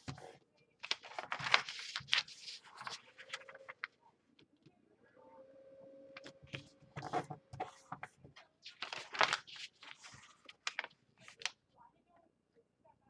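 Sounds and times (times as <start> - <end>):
paper rustling and crinkling: 0.0 - 4.0, 6.2 - 11.6.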